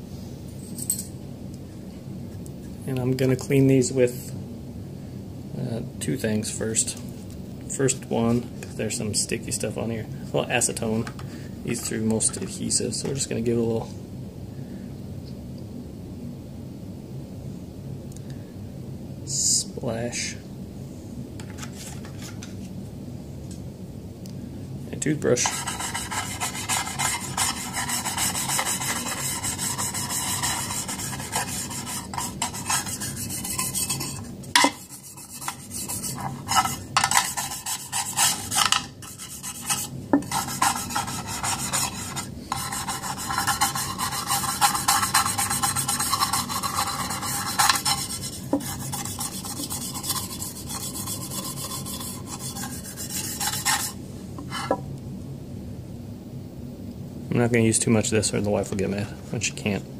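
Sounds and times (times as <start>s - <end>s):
toothbrush scrubbing metal: 25.4s - 54.0s.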